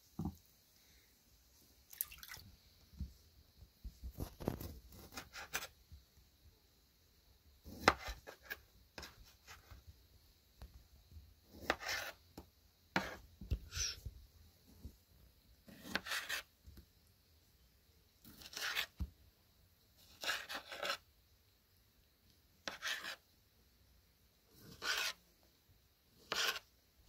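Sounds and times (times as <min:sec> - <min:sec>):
knife cutting on wooden board: 0:07.7 - 0:09.6, 0:11.5 - 0:12.2, 0:13.0 - 0:14.0, 0:15.7 - 0:16.5, 0:18.2 - 0:19.1, 0:20.0 - 0:21.0, 0:22.6 - 0:23.2, 0:24.6 - 0:25.2, 0:26.2 - 0:26.7.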